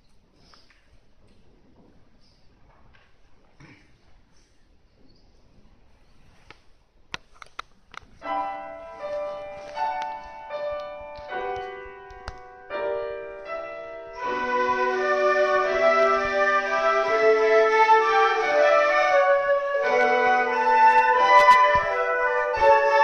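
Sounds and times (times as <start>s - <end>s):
grand piano chords: 8.2s - 23.0s
flute ensemble held notes: 13.5s - 23.0s.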